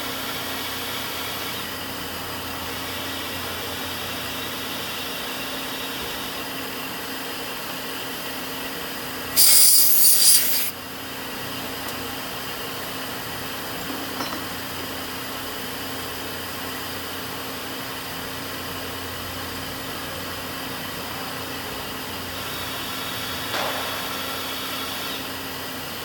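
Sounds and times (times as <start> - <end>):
drill whining into metal: 9.3 - 10.8, 22.4 - 25.4
loud air hiss: 9.3 - 10.8.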